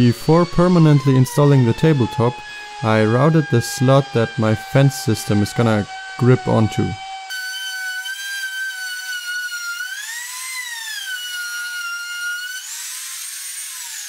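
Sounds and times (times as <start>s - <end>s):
router whining: 0.0s - 14.0s.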